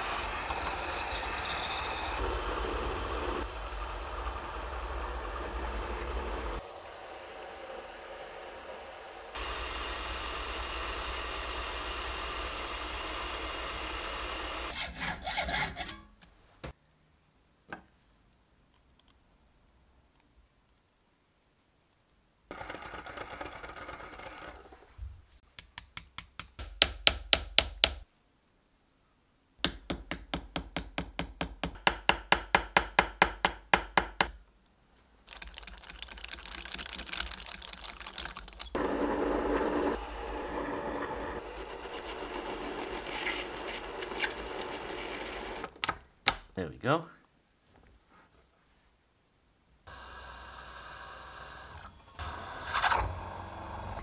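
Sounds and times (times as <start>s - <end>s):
lathe whirring and scraping: 0.0s - 16.0s, 38.8s - 45.7s
hammer tapping metal on anvil: 29.6s - 34.4s.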